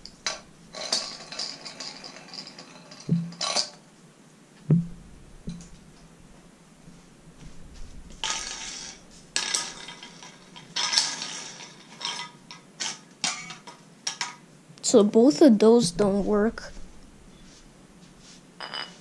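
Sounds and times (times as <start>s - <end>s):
glass bulbs clinking and rattling: 0.0s - 3.8s, 8.2s - 14.4s, 18.6s - 19.0s.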